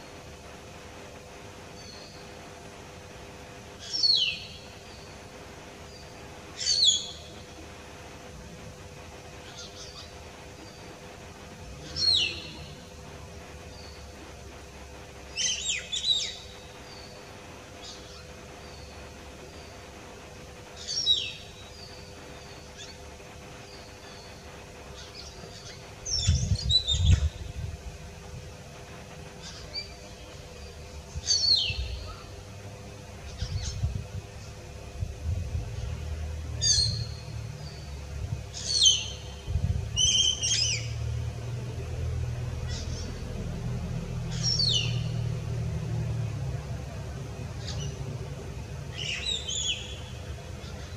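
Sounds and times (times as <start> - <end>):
myna whistled calls: 5.9 - 7.4, 11.8 - 12.8, 31.2 - 32.3, 38.5 - 39.3, 39.9 - 41.0, 48.9 - 50.9.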